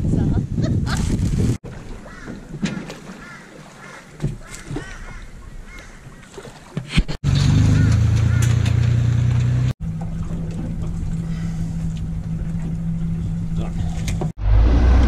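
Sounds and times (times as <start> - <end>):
truck engine running loud: 7.2 - 10.2.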